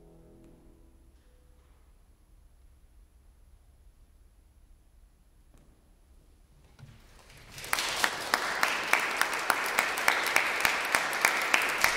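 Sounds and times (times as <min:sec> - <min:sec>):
audience applause: 0:07.2 - 0:11.9.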